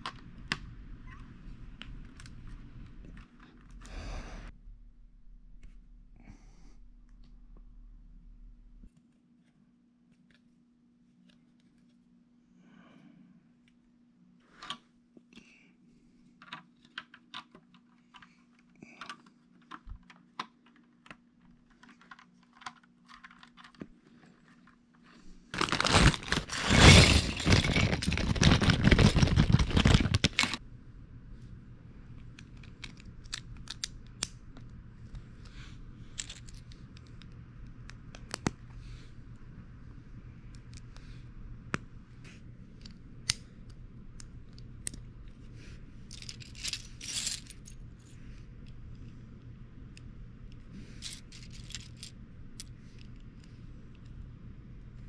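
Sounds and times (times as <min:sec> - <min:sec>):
plastic pieces clattering: 0:25.5 - 0:30.6, 0:36.2 - 0:37.2, 0:46.1 - 0:47.8, 0:51.0 - 0:52.1.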